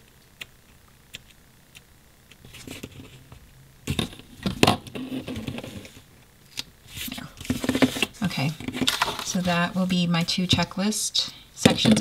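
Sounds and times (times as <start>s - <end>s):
paper rustling and crinkling: 6.9s - 10.0s.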